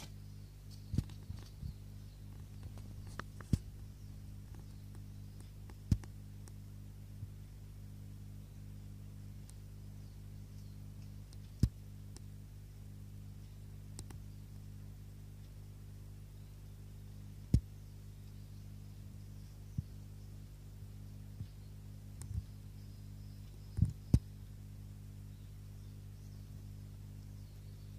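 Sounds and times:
steady low hum: 0.0 - 27.9.

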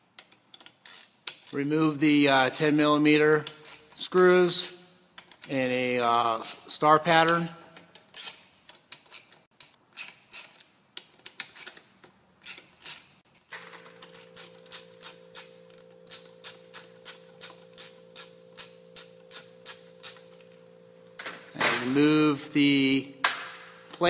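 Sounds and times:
steady low hum: 13.8 - 24.0.

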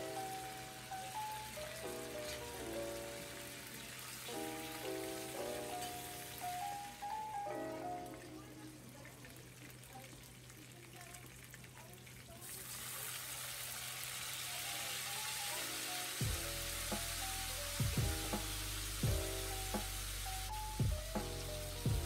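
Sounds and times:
frying sizzle in a wok: 0.0 - 22.0
background music with bass beat: 16.2 - 22.0.

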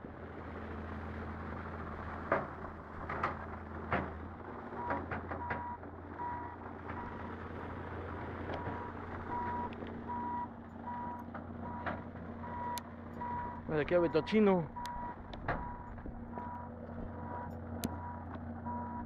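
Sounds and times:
low engine drone: 0.0 - 19.0
reversing alarm beeping: 4.8 - 7.2, 8.6 - 19.0.

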